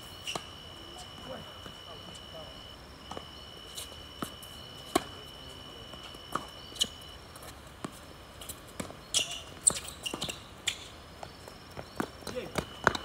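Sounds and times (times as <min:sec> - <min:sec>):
tennis ball bouncing on court: 0:04.9 - 0:05.2, 0:06.0 - 0:08.0, 0:08.7 - 0:13.0.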